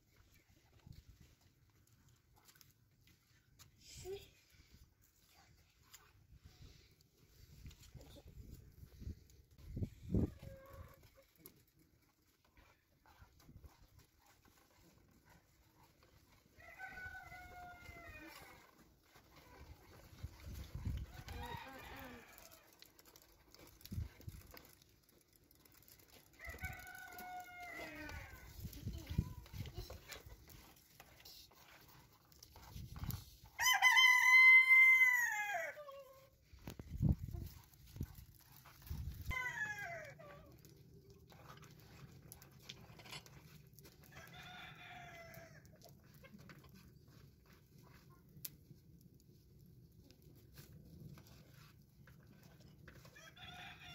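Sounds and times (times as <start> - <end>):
rooster crowing: 16.6 - 18.3, 21.2 - 22.6, 26.4 - 28.3, 33.6 - 35.8.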